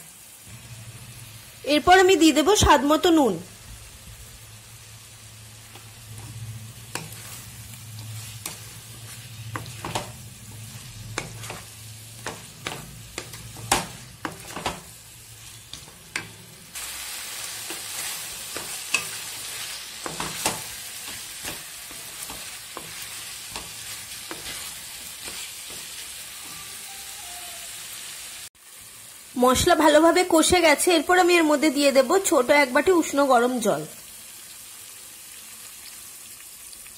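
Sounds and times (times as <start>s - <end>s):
vegetables sizzling in oil: 0.0s - 36.9s
spatula scraping a pan: 5.7s - 16.8s, 17.4s - 27.4s.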